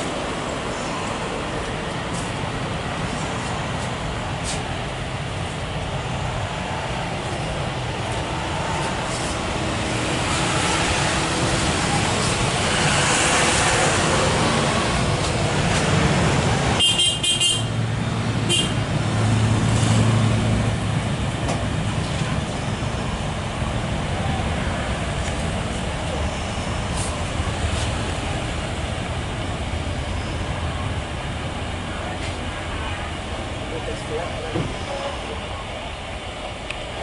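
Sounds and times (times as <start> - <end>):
jet engines roaring: 0.0 - 37.0
road traffic: 0.0 - 37.0.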